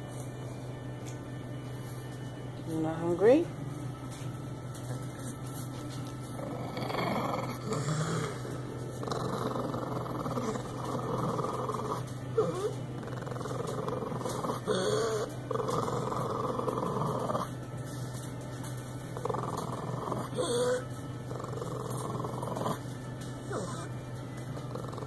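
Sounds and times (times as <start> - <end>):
dog breathing noisily: 6.3 - 18.3, 19.2 - 22.9
dog whining: 9.0 - 17.5, 19.3 - 22.8, 23.4 - 24.0.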